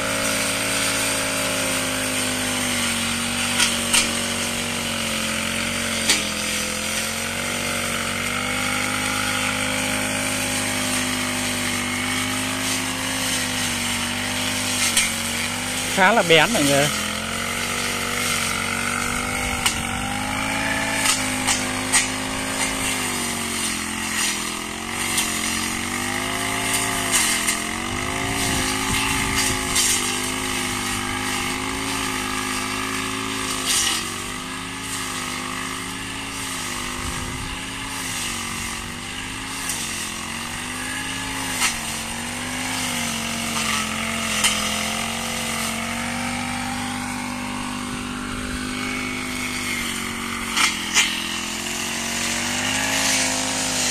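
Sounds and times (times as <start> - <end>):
brush cutter engine running: 0.0 - 53.9.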